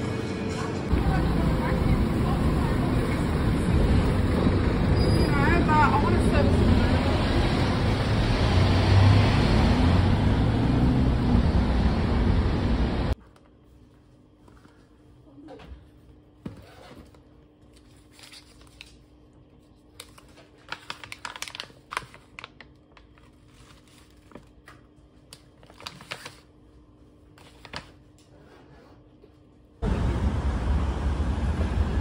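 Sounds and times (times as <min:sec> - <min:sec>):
steady low hum: 0:00.2 - 0:08.0
packaging clicks and rustles: 0:19.9 - 0:26.5.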